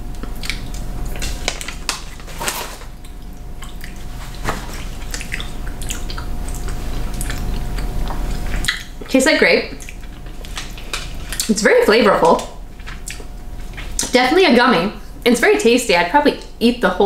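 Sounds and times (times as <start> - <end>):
chewing gummy candy: 0.0 - 14.2
low room hum: 0.0 - 17.0
plastic candy wrapper crinkling: 1.2 - 3.1, 10.0 - 11.6.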